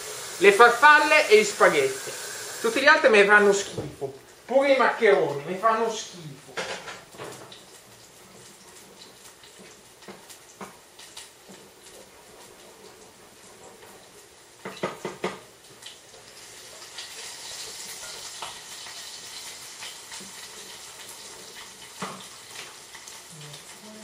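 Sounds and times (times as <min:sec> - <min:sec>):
water running from tap: 0:00.0 - 0:03.6, 0:12.8 - 0:24.0
kitchenware clattering: 0:06.5 - 0:07.6.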